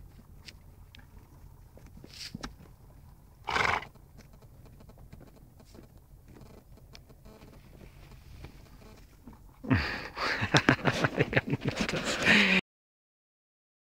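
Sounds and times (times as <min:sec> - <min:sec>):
horse snorting: 0:03.4 - 0:04.0.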